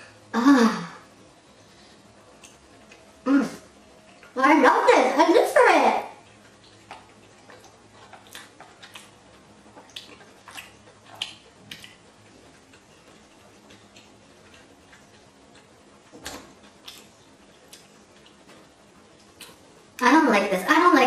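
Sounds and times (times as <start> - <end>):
person chewing: 6.2 - 19.7.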